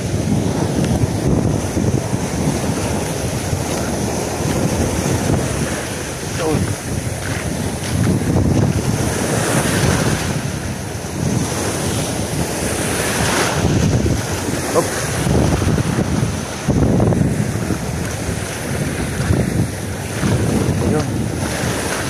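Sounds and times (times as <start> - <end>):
waves breaking over rocks: 0.0 - 22.0
wind buffeting microphone: 0.0 - 22.0.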